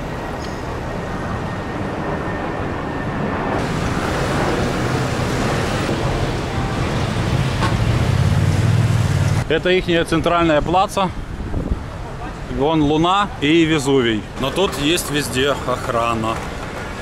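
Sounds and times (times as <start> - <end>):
passing cars: 0.0 - 9.8.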